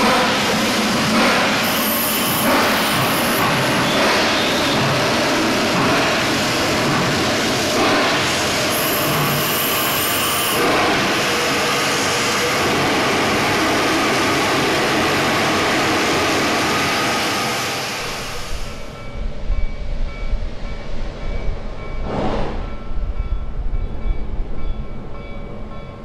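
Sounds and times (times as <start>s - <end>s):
steam hissing from cylinders: 0.1s - 5.1s, 5.8s - 12.0s.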